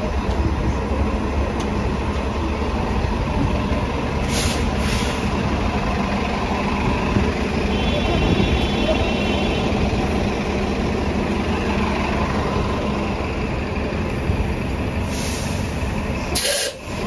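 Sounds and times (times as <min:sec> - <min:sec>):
bus diesel engine idling: 0:00.0 - 0:17.0
short air hisses: 0:04.2 - 0:05.3, 0:15.0 - 0:15.7, 0:16.4 - 0:16.8.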